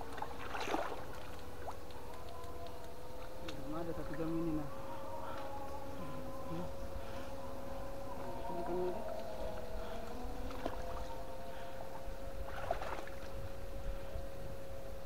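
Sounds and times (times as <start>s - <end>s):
short splash: 0.2s - 1.3s, 12.5s - 13.3s.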